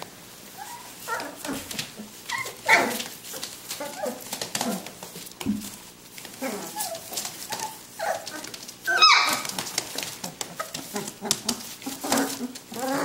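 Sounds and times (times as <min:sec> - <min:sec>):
paws scratching on newspaper: 0:00.0 - 0:13.0
puppies yipping and whimpering: 0:00.4 - 0:05.2, 0:06.3 - 0:13.0
puppy high-pitched yelp: 0:00.5 - 0:01.6, 0:02.2 - 0:04.9, 0:06.4 - 0:13.0.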